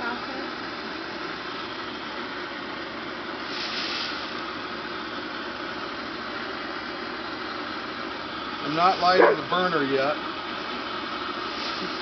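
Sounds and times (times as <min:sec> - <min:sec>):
propane torch hissing: 0:00.3 - 0:12.0.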